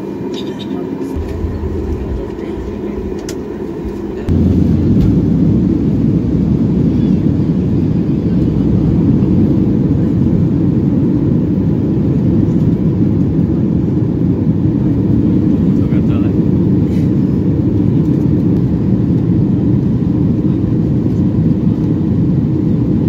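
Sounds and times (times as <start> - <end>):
airliner cabin engine rumble: 0.0 - 23.0.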